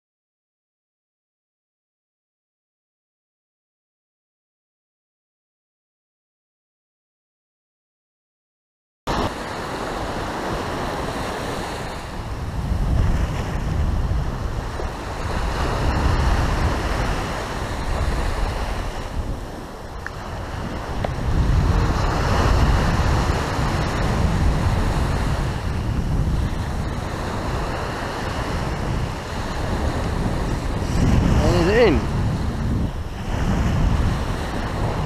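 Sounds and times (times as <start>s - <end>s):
ocean surf breaking: 9.1s - 35.0s
wind buffeting microphone: 9.1s - 35.0s.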